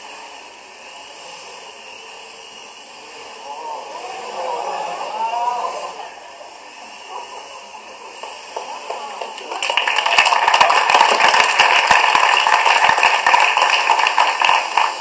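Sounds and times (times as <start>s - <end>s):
audience applause through tv speakers: 8.1s - 15.0s.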